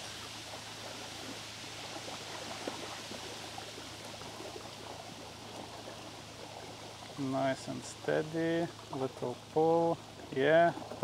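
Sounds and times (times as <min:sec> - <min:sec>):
water-side ambient hiss: 0:00.0 - 0:11.0.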